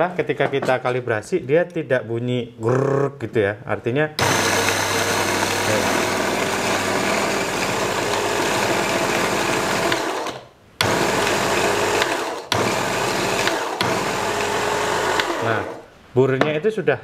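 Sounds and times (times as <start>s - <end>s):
electric coffee grinder grinding: 4.2s - 15.8s.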